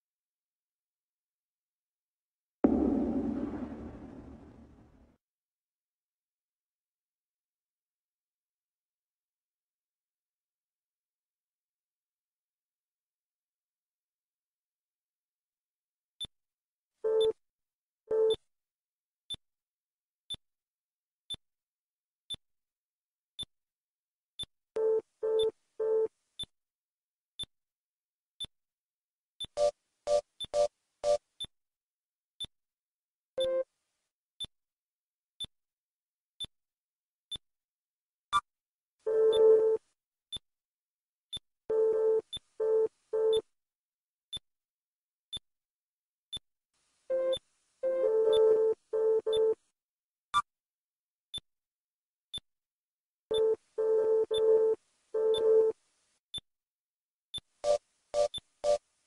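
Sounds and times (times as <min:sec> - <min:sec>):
low buzzy beeps: 0:02.6 - 0:04.8
short low electronic bleeps: 0:02.6 - 0:04.8
high electronic ticks: 0:57.3 - 0:58.8.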